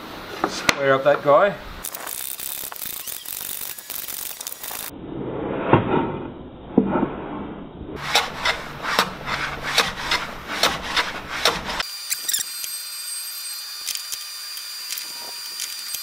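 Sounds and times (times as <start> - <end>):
faint workshop hum: 0.0 - 5.0, 6.6 - 16.0
hand plane scraping strokes: 8.0 - 11.8.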